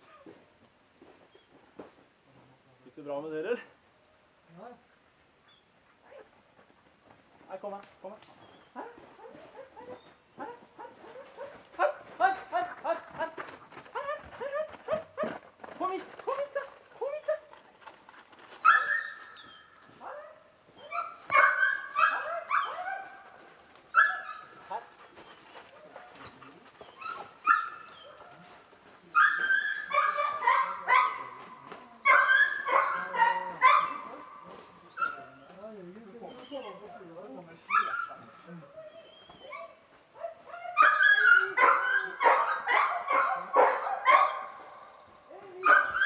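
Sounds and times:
dog barking and yelping: 0:08.8 - 0:13.0, 0:18.6 - 0:24.9, 0:26.8 - 0:28.5, 0:29.2 - 0:31.4, 0:32.0 - 0:35.6, 0:36.2 - 0:44.6, 0:45.6 - 0:46.0
dog whining and yelping: 0:18.6 - 0:19.6, 0:38.8 - 0:39.8, 0:40.5 - 0:43.1.

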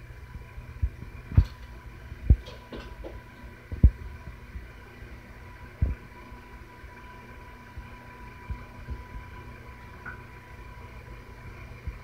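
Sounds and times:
faint hum: 0:00.0 - 0:12.0
dull low thumps: 0:03.7 - 0:04.7.

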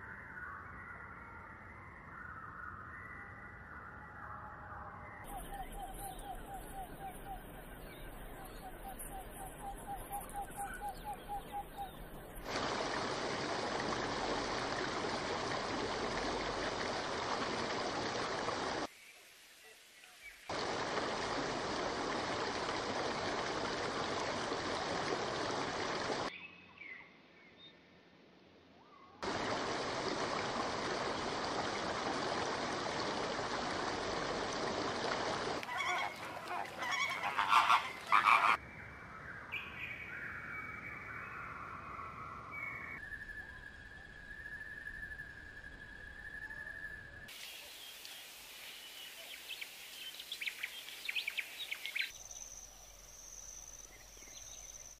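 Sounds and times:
chorus of calling animals: 0:35.6 - 0:38.6
sharp loud bird calls: 0:35.6 - 0:38.6
gliding whistled notes: 0:42.9 - 0:47.3.

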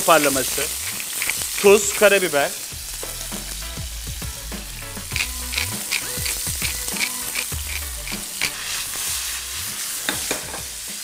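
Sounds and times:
pepper mill grinding ticks: 0:00.0 - 0:02.4, 0:05.0 - 0:08.6
chicken sizzling in frying pan: 0:00.0 - 0:11.0.

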